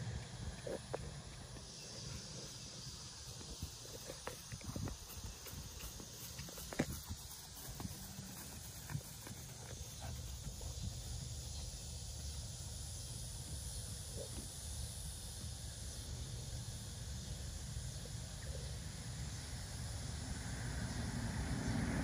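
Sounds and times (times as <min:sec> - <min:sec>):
wind on microphone: 0:03.4 - 0:06.0.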